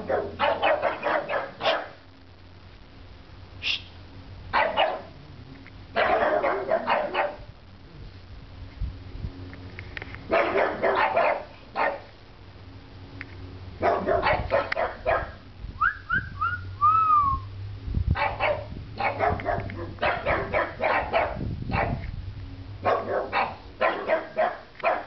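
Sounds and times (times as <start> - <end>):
dogs barking: 0.0 - 2.0, 4.5 - 5.2, 5.9 - 7.5, 10.3 - 12.1, 13.8 - 15.4, 18.2 - 22.0, 22.8 - 25.0
high whistle-like notes: 15.8 - 17.5.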